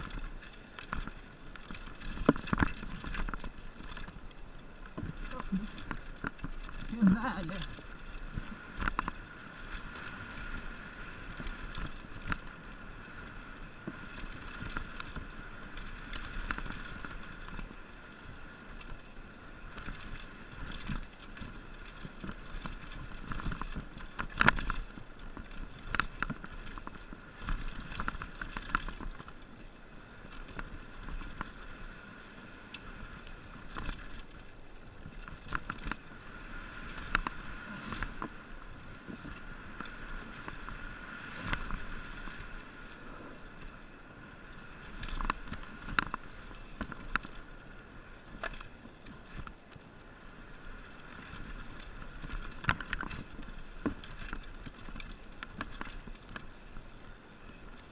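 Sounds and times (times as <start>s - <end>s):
bike frame rattling: 0.0s - 40.8s, 43.5s - 47.6s, 50.8s - 57.9s
bike tyres on dirt: 0.0s - 57.9s.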